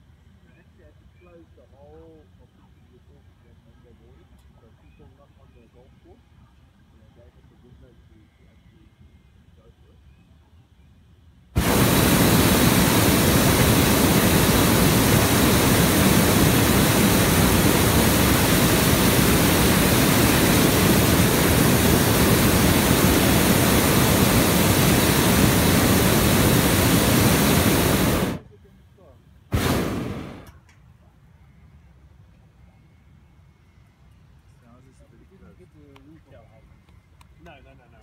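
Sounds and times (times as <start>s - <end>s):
propane burner rushing hiss: 11.6s - 28.4s, 29.5s - 30.5s.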